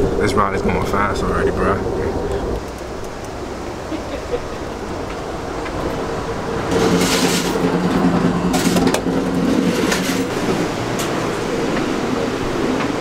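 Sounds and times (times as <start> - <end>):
low multi-tone hum: 0.0 - 13.0
train rumble and hiss: 0.0 - 13.0
clicks and clatter: 6.7 - 10.3.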